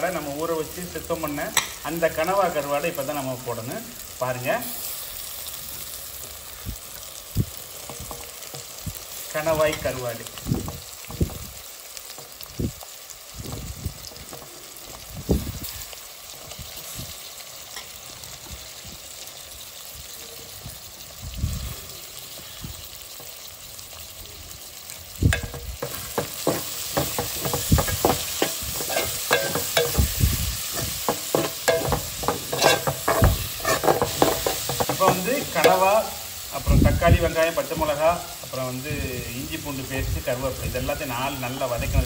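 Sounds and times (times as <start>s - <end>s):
food sizzling in oil: 0.0s - 42.0s
ladle scraping a pot: 25.4s - 35.7s.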